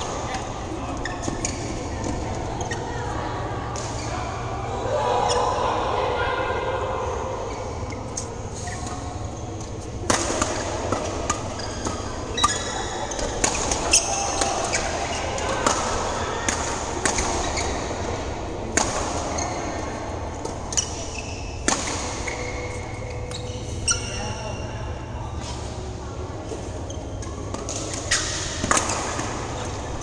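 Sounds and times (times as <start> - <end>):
shoes squeaking on court floor: 0.0 - 3.2, 7.8 - 15.5, 19.2 - 30.0
rackets striking shuttlecock: 9.7 - 17.9, 18.7 - 24.2, 27.2 - 29.8.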